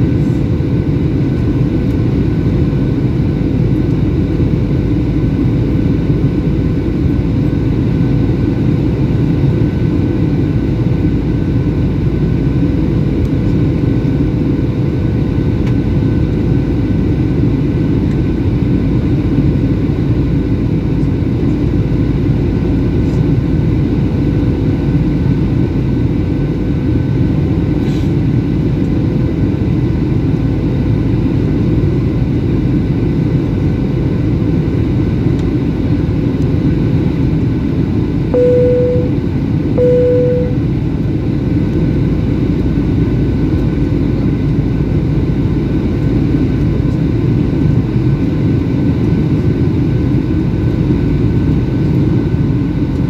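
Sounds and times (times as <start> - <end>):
airplane cabin roar: 0.0 - 53.0
faint constant whine: 33.1 - 53.0
short tones: 38.4 - 39.2, 39.8 - 40.6.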